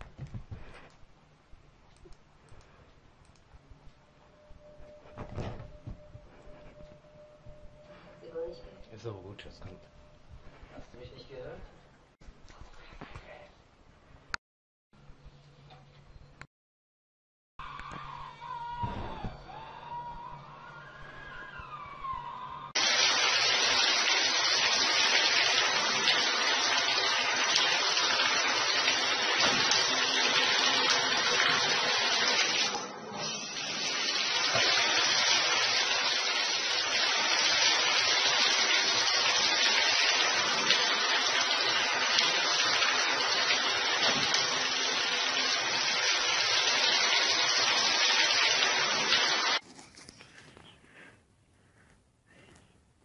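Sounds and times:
shower spraying into bathtub: 0:22.8 - 0:49.6.

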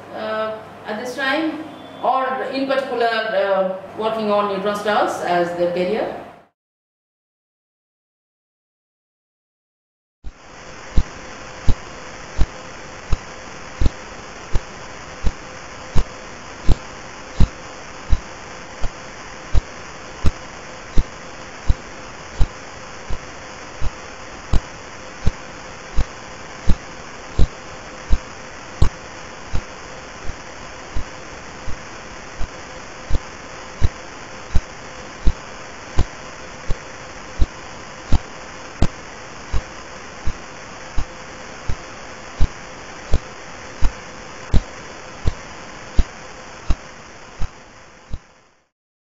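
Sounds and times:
steady hiss: 0:10.3 - 0:48.7.

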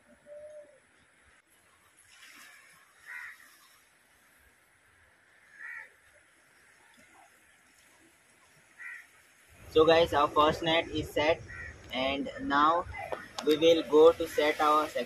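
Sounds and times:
bird calling: 0:00.0 - 0:01.0, 0:10.8 - 0:12.0.

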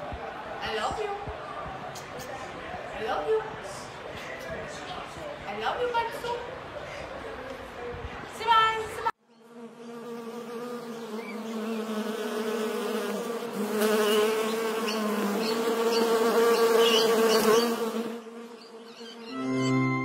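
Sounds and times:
bee buzzing: 0:09.3 - 0:19.4.

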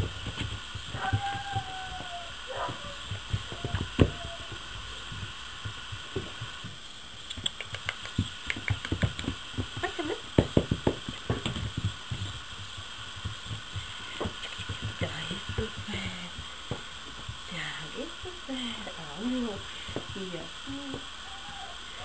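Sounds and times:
scratchy knocks and thumps: 0:00.0 - 0:17.6
puppies scuffling: 0:00.0 - 0:22.0.

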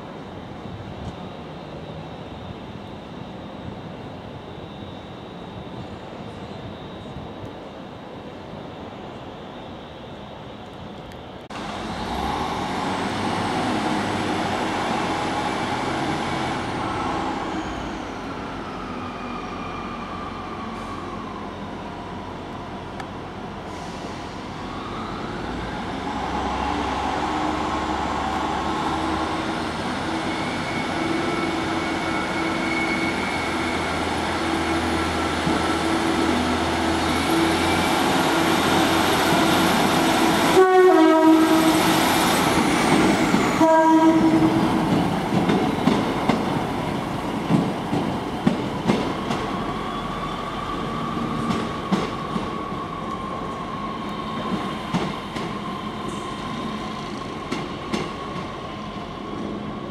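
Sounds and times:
diesel railcar engine: 0:00.0 - 0:59.9
train horn blasts: 0:40.5 - 0:41.9, 0:43.6 - 0:44.6.

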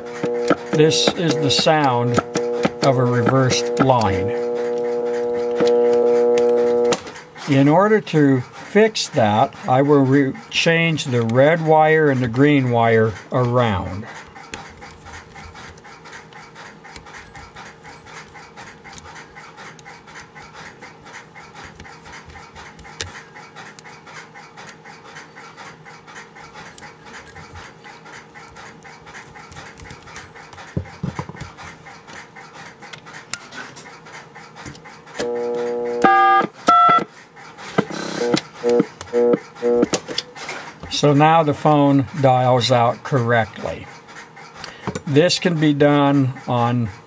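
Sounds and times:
loud steady dial tone: 0:00.0 - 0:07.2, 0:35.2 - 0:37.1, 0:37.8 - 0:40.0
light scratching of wires: 0:00.0 - 0:07.6
touch-tone keypad beeps: 0:36.0 - 0:37.1.

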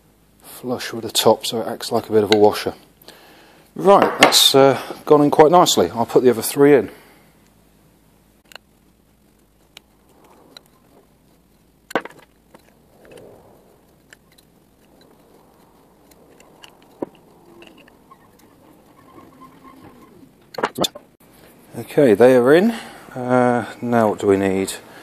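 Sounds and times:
faint rustling: 0:08.4 - 0:21.7.

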